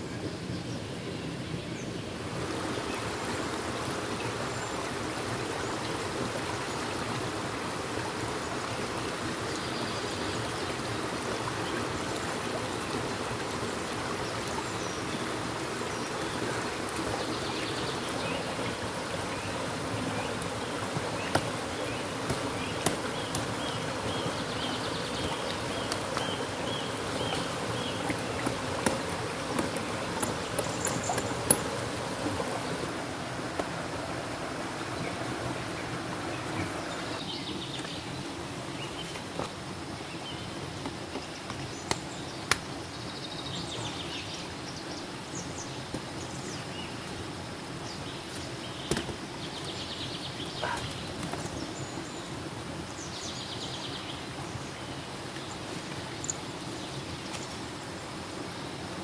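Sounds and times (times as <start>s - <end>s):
stream flowing: 0.0s - 59.0s
insects buzzing: 12.7s - 39.0s
vines rustling and clicking: 24.4s - 32.5s.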